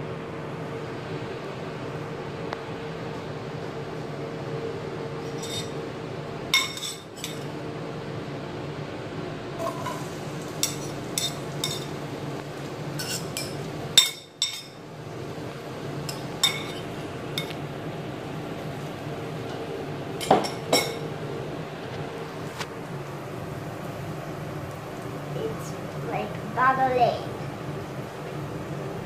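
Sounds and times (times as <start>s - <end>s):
steady low hum: 0.0s - 29.0s
dishes and utensils clinking: 5.3s - 5.8s, 6.6s - 7.5s, 9.6s - 12.0s, 13.0s - 14.8s, 16.1s - 17.6s, 20.2s - 21.1s.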